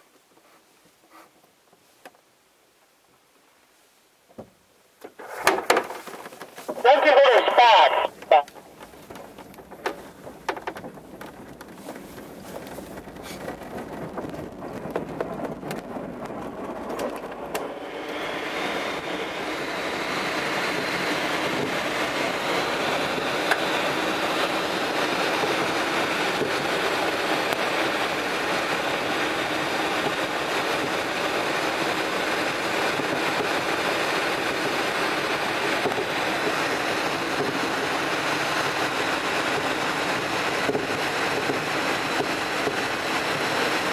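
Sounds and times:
rushing airflow: 9.7 - 43.9.

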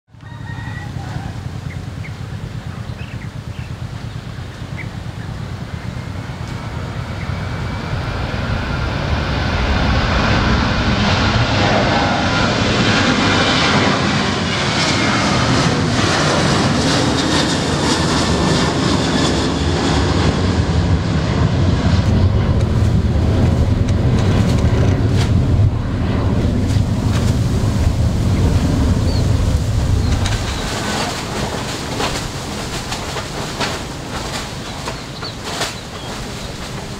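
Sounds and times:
jet engines rushing with whine: 0.1 - 36.9
low rumble: 1.0 - 36.9.

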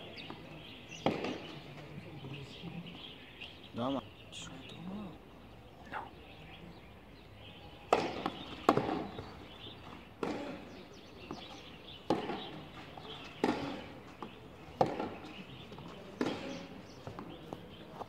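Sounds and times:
tennis ball struck by racket: 1.0 - 1.6, 7.8 - 9.4, 10.2 - 10.8, 12.0 - 17.4.

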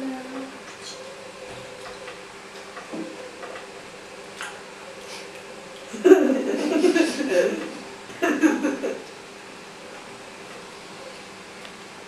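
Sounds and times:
girl's voice: 0.0 - 0.6
steady low hum: 0.0 - 12.0.

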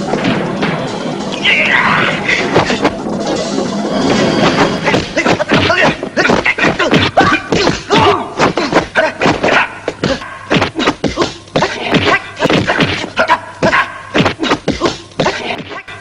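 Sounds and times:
punches and blocks thudding: 4.4 - 15.7.

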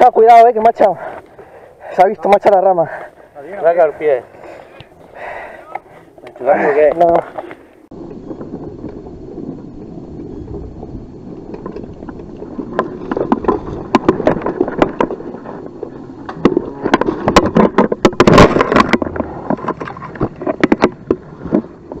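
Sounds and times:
wind noise: 2.2 - 22.0
bike rattling over rocks: 5.2 - 22.0
tyre rumble: 6.4 - 22.0.

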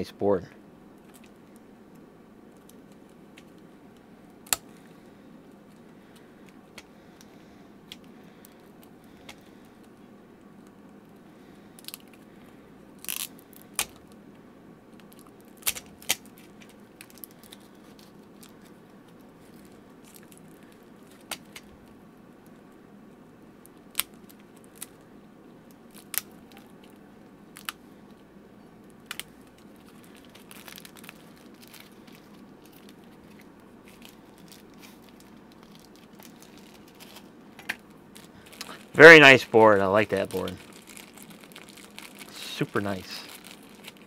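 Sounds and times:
faint steady hum: 0.0 - 44.0
tape tearing crackles: 13.0 - 14.2, 14.9 - 18.8, 23.6 - 25.0, 25.8 - 27.8, 28.9 - 44.0.

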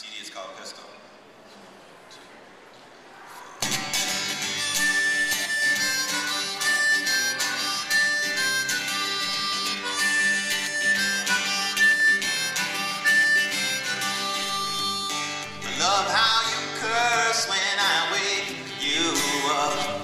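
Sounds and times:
harmonica melody: 3.6 - 20.0
strummed acoustic guitar: 3.6 - 20.0.

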